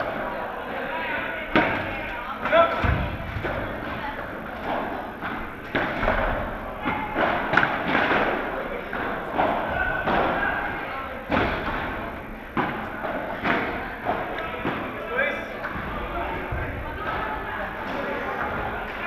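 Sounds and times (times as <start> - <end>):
padel ball hits echoing: 1.4 - 15.0.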